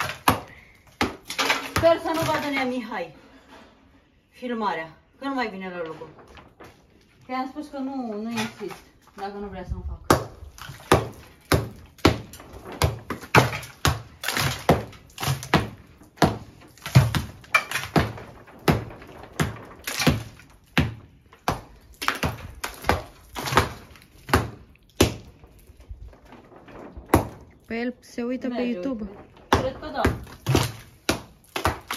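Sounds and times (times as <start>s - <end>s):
hammer knocking plaster: 10.1s - 25.4s, 29.5s - 31.9s.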